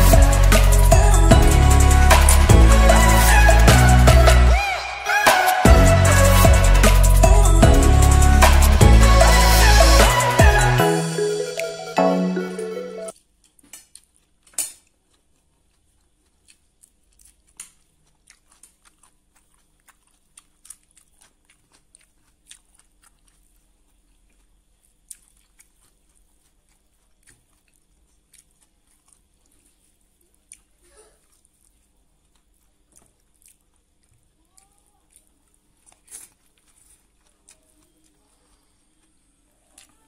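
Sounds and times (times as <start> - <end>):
person chewing and lip smacking: 0.0 - 4.5, 13.1 - 40.0.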